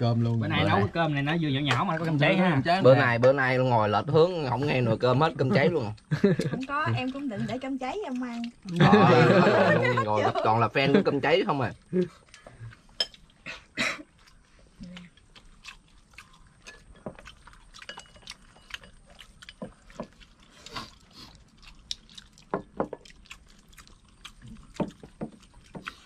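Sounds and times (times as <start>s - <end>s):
chewing: 4.5s - 9.9s, 11.1s - 26.0s.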